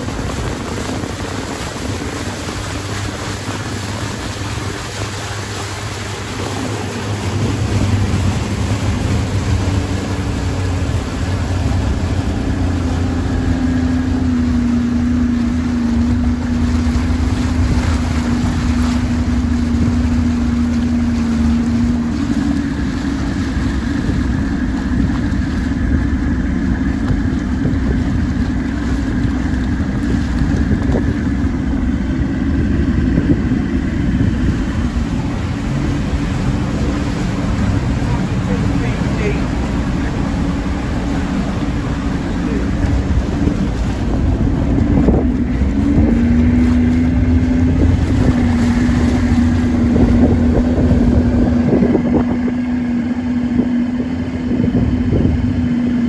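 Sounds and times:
boat motor running: 0.0s - 56.0s
choppy water: 0.0s - 56.0s
wind buffeting microphone: 0.0s - 56.0s.

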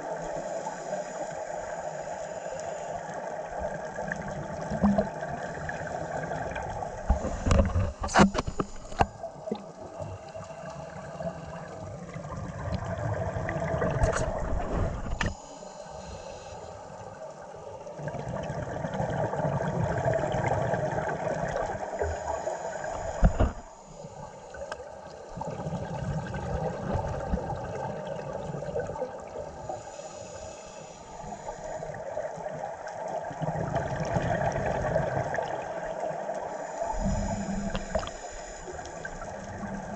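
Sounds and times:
bubbling regulator exhalations: 36.6s - 39.9s.

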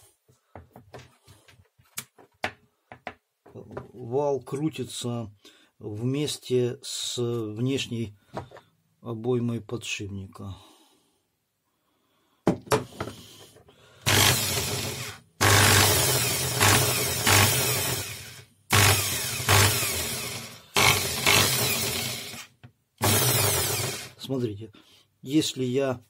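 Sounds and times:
electric drill motor running: 14.0s - 24.2s.

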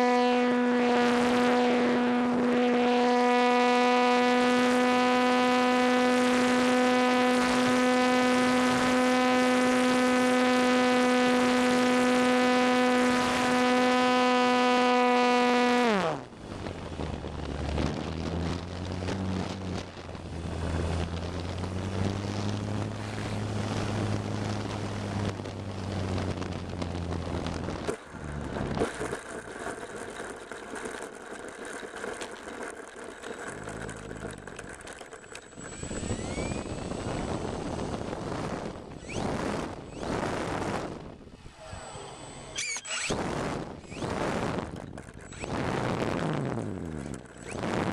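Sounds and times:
low wavering hum: 0.0s - 47.9s
model plane motor and propeller: 0.0s - 47.9s
wind rush: 35.6s - 41.9s.

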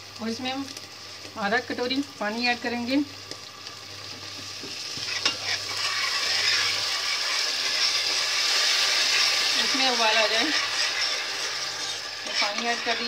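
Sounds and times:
hissing sizzle: 0.0s - 13.0s
ladle stirring: 5.0s - 13.0s.

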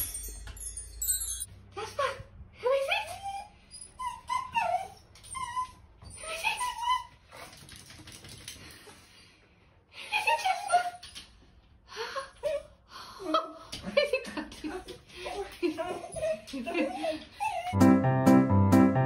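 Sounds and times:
dog whining: 2.9s - 7.2s.

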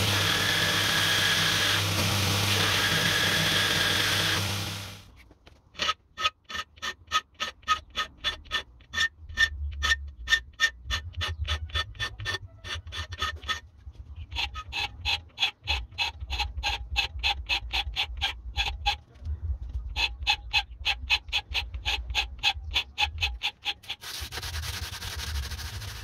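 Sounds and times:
file rasping on steel: 5.8s - 19.1s, 19.9s - 26.0s.

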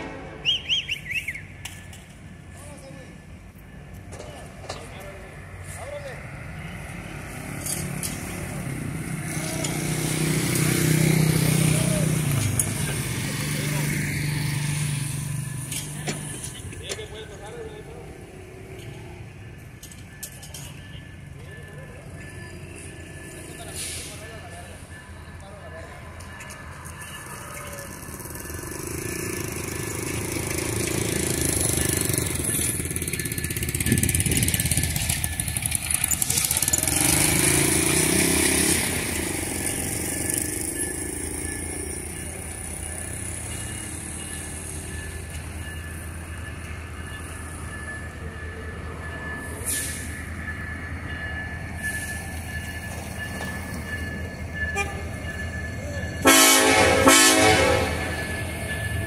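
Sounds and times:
loud air horn blast: 0.0s - 0.6s, 56.2s - 58.1s
diesel locomotive engine rumbling: 0.0s - 59.0s.

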